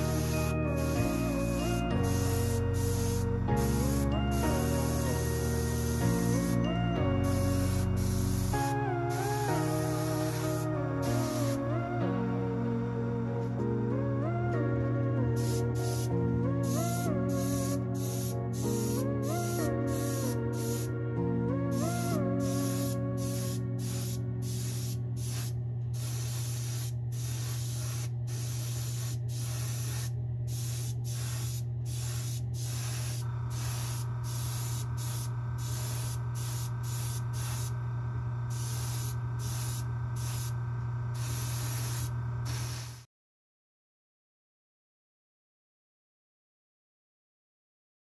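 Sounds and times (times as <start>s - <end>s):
airbrush spraying bursts: 0.0s - 11.7s, 15.4s - 20.9s, 21.7s - 37.9s, 38.5s - 43.1s
steady high tone: 0.0s - 25.2s.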